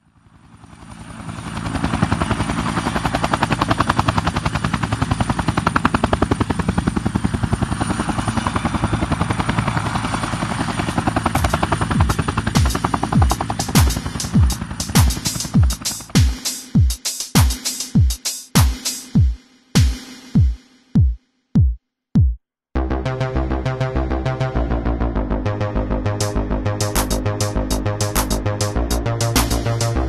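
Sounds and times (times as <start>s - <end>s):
rapid even chopping: 11.4s - 22.3s.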